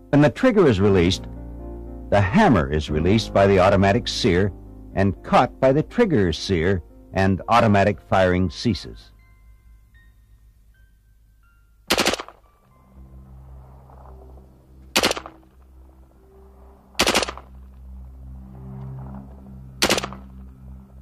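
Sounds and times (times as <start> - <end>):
synthesizer music: 0.0 - 21.0
automatic rifle bursts: 11.9 - 12.4, 15.0 - 15.3, 17.0 - 17.5, 19.8 - 20.2.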